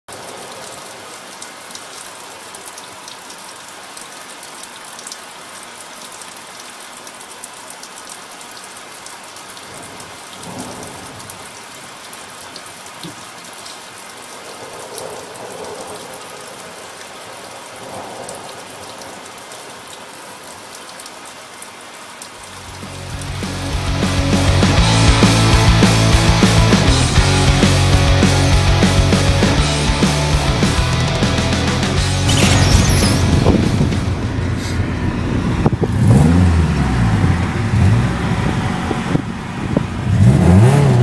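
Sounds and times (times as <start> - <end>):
rain pattering: 0.1 - 41.0
low rumbles: 30.6 - 40.3.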